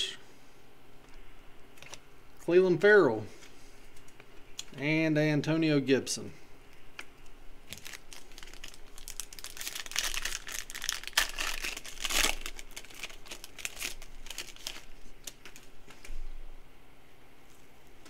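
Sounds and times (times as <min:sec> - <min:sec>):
foil wrapper crinkling: 0:07.7 - 0:16.2.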